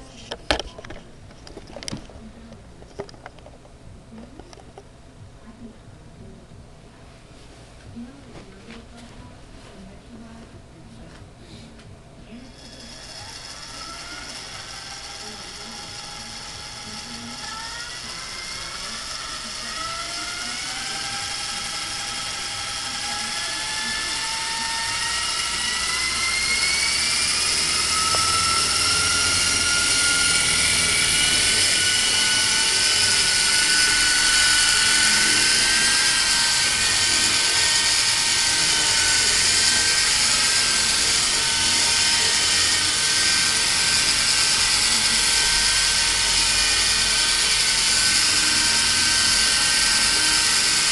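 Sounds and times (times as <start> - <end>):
electric helicopter motor whine: 12.4 - 50.9.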